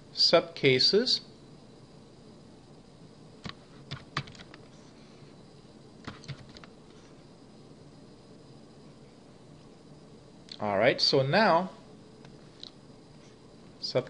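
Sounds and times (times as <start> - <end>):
background hiss: 0.0 - 14.0
computer keys and mouse clicking: 3.4 - 4.6, 6.0 - 6.7.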